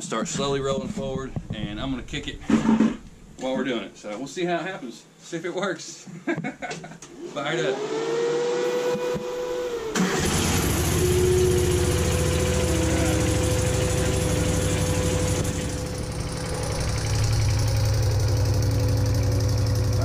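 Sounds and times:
steady whine: 0.0s - 4.7s, 8.8s - 20.0s
loader engine running: 9.2s - 20.0s.

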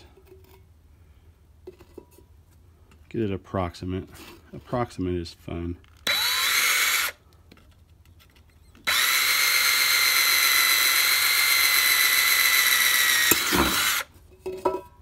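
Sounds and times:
cordless drill boring through tin can: 6.0s - 7.2s, 8.8s - 14.1s.

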